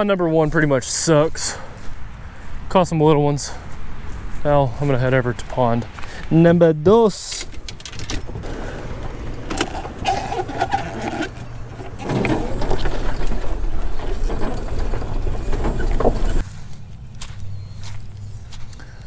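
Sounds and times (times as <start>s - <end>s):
cart body rattling: 7.1s - 16.4s
golf cart humming: 7.5s - 16.4s.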